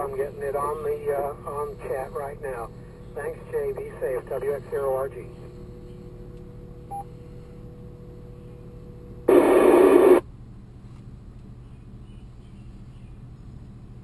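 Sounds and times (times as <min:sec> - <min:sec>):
radio static hiss: 0:03.2 - 0:05.3, 0:09.3 - 0:10.2
radio beep: 0:09.3 - 0:10.2.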